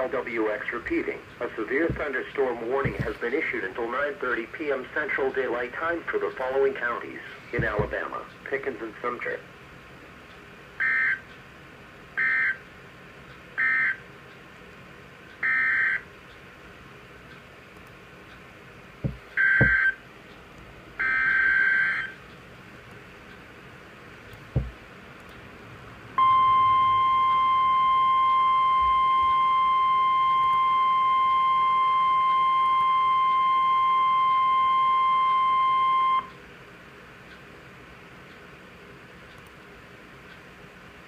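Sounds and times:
steady warning alarm tone: 10.8 - 11.2, 12.2 - 12.6, 13.6 - 14.0, 15.4 - 16.1, 19.1 - 20.0, 21.0 - 22.2, 26.2 - 36.3
faint clicks: 39.3 - 39.7.

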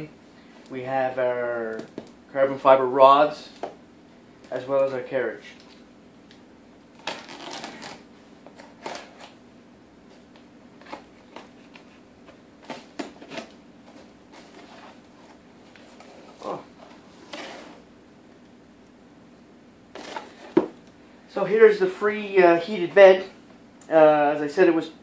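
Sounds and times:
packing tape pulled away: 7.0 - 8.0
cardboard rustling and crinkling: 7.0 - 9.4, 10.8 - 17.8, 20.0 - 20.8.

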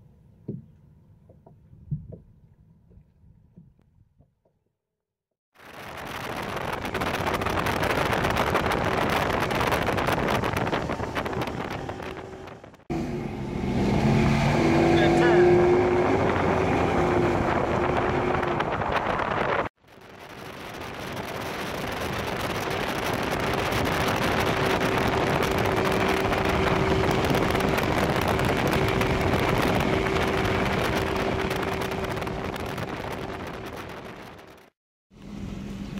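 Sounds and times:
water rushing from wake: 5.6 - 12.7, 13.7 - 34.7
wind buffeting microphone: 5.6 - 12.8, 15.6 - 34.7
outboard motor droning: 6.8 - 18.8, 19.9 - 33.5.

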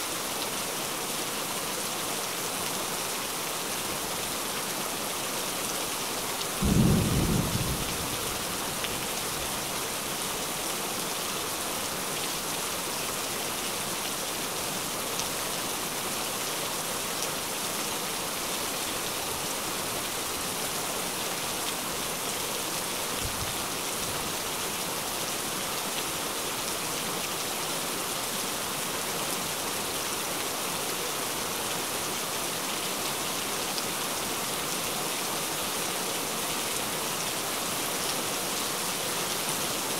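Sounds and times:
steady rainfall: 0.0 - 39.9
thunder: 6.6 - 8.5.

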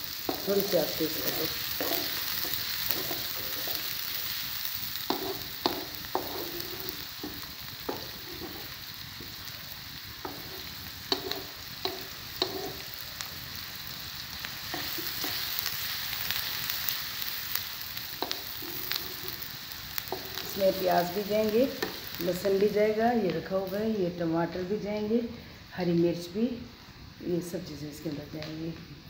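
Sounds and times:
onions sizzling in a pan: 0.0 - 29.0
spatula scraping a pan: 0.2 - 9.5, 10.2 - 13.0, 14.5 - 15.8, 18.1 - 22.2.

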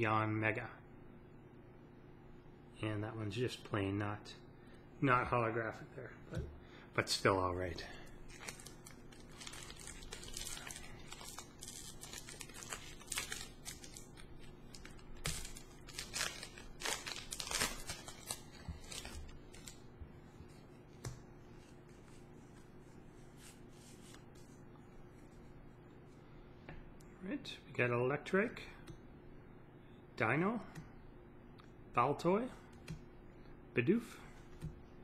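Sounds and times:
foil wrapper crinkling and tearing: 8.2 - 19.8.

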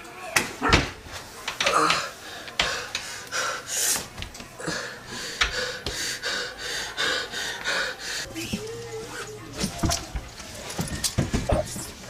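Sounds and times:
man breathing hard and gasping: 1.9 - 8.3.

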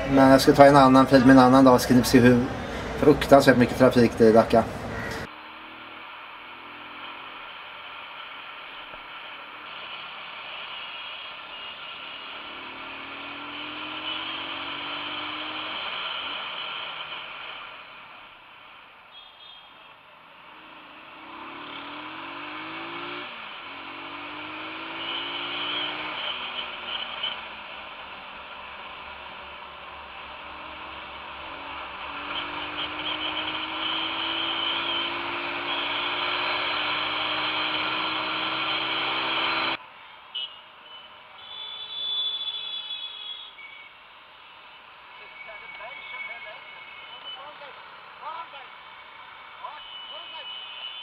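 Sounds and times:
street traffic: 0.0 - 51.0
motorcycle engine accelerating: 12.2 - 16.8, 20.4 - 39.8.

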